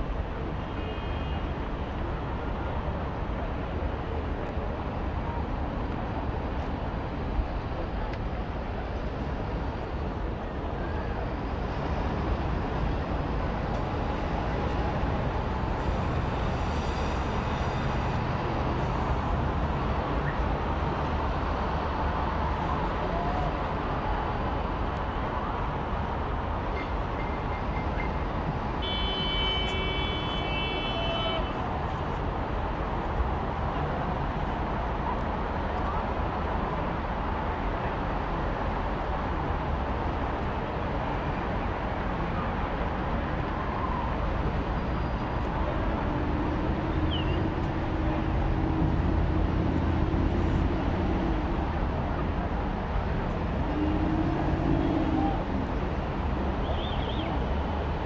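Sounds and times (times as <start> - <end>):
city hubbub: 0.0 - 58.0
high horn toot: 28.8 - 31.5.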